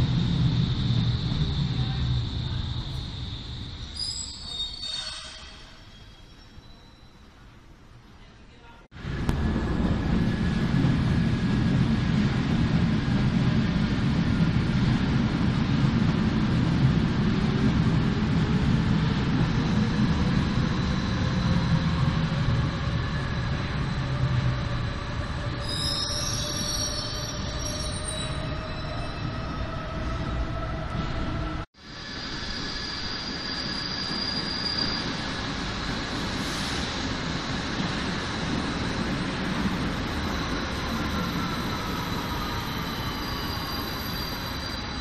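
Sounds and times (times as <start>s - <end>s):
high-pitched brake squeals: 1.8s - 7.4s, 25.6s - 29.5s, 32.7s - 35.3s, 40.3s - 45.0s
train wheels rumbling on rails: 9.0s - 45.0s.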